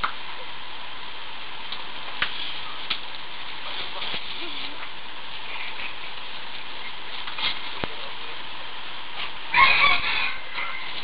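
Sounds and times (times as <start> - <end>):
background hiss: 0.0 - 11.0
fowl call: 9.5 - 11.0.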